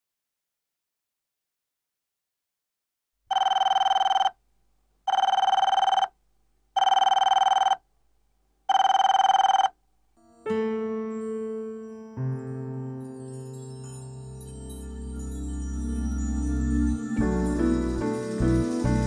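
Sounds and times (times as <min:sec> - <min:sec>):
phone ringing with trill: 0:03.3 - 0:04.4, 0:05.1 - 0:06.2, 0:06.8 - 0:07.8, 0:08.7 - 0:09.8.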